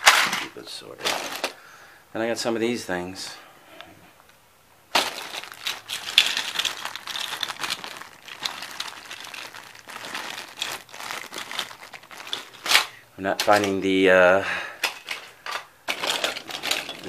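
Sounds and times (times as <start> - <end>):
plastic bag crinkling: 4.9 - 13.9, 14.9 - 17.0.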